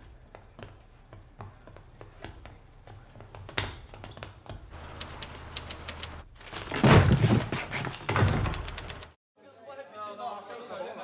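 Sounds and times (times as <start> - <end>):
typewriter keys clicking: 4.8 - 6.2, 8.4 - 9.1.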